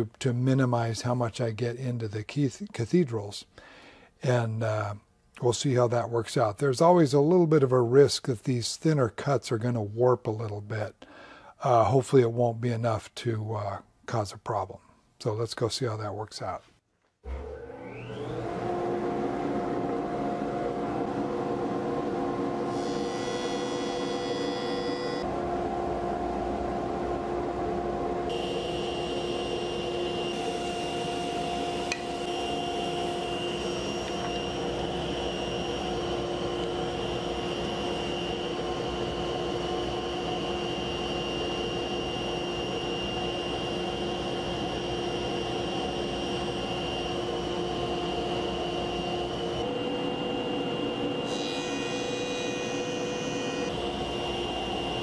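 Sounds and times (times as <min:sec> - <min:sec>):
jointer motor hum: 0:17.3 - 0:25.4, 0:28.3 - 0:55.0.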